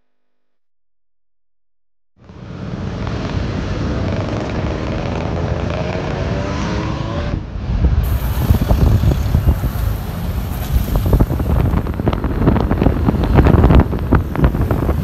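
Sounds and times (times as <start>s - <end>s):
wind buffeting microphone: 7.3s - 15.0s
low rumble: 7.4s - 15.0s
bus engine running: 8.0s - 15.0s.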